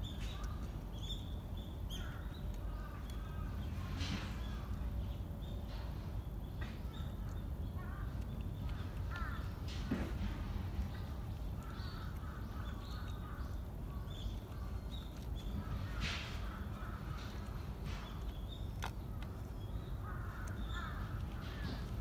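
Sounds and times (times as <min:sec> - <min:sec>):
birds calling: 0:00.0 - 0:22.0
low outdoor rumble: 0:00.0 - 0:22.0
cat crunching dry kibble: 0:07.4 - 0:22.0.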